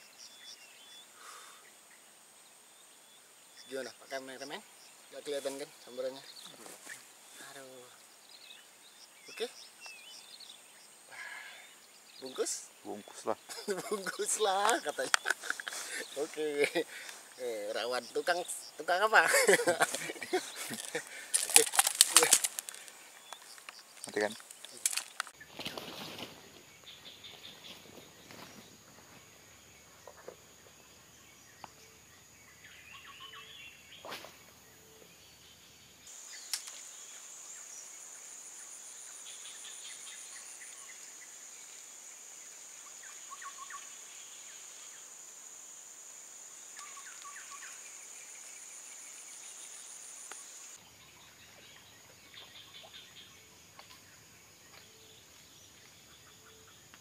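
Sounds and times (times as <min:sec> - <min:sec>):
insects shrilling drone: 0:00.0 - 0:57.0
pulsed insect trill: 0:07.3 - 0:25.4
sharp clicks: 0:20.8 - 0:25.4, 0:36.4 - 0:36.8.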